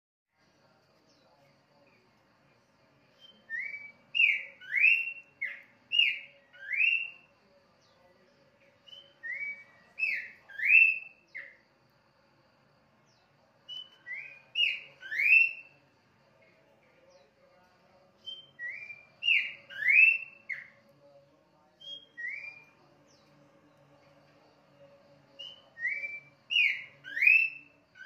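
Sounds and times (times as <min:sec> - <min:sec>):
bird singing whistled notes: 0:03.0 - 0:11.6, 0:13.0 - 0:15.8, 0:18.1 - 0:21.1, 0:21.7 - 0:23.8, 0:24.4 - 0:28.0.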